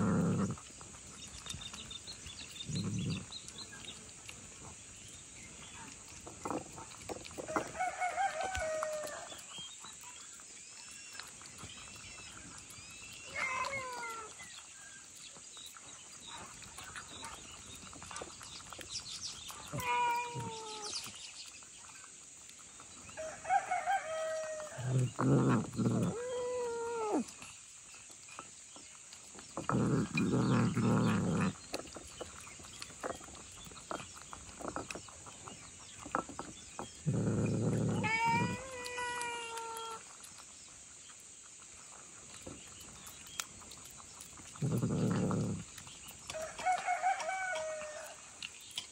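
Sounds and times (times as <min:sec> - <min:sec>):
animal mewing cries: 0:13.3 - 0:14.4, 0:19.7 - 0:20.9, 0:37.7 - 0:40.0.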